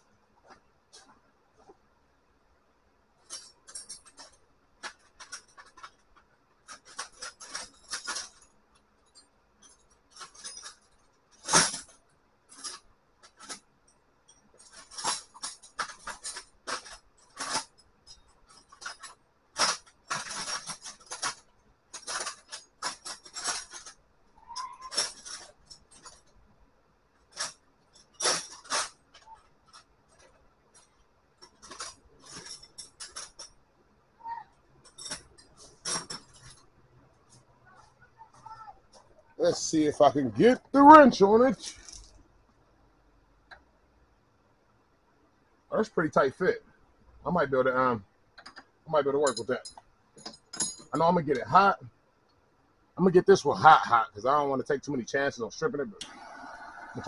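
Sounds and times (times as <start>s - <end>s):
metal hand tools clinking: 49.2s - 51.5s.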